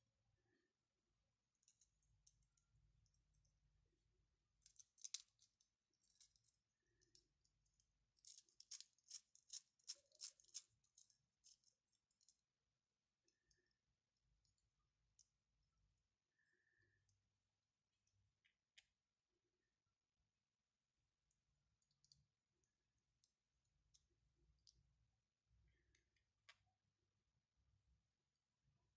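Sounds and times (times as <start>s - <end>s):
plastic parts clicking and rattling: 4.6s - 12.4s.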